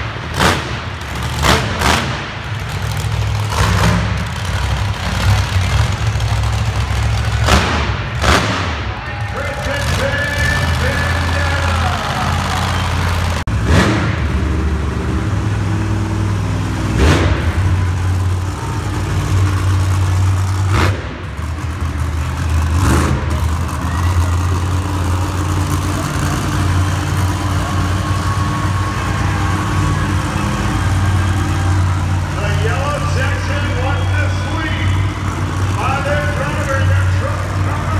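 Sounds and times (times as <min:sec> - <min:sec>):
truck engine droning: 0:00.0 - 0:37.9.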